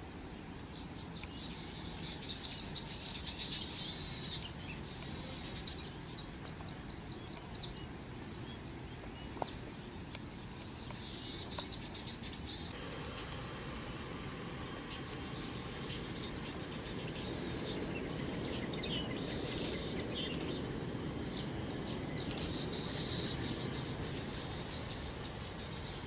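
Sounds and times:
insects chirping and buzzing: 0.0 - 26.0
steady low rumble: 12.6 - 26.0.

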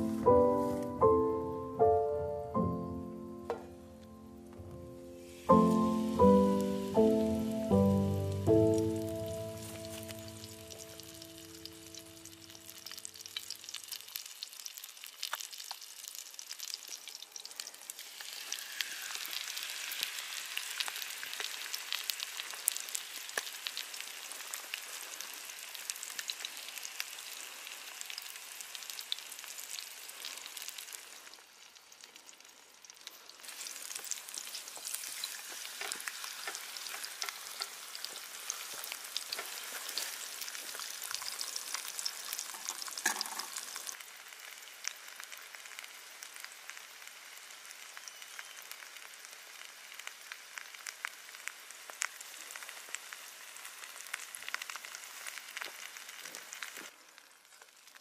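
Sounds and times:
battered leaves frying in oil: 3.4 - 58.0.

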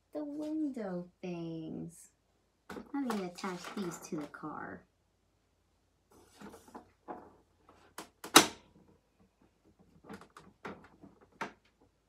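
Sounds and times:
plastic toy parts knocking: 2.7 - 4.4.

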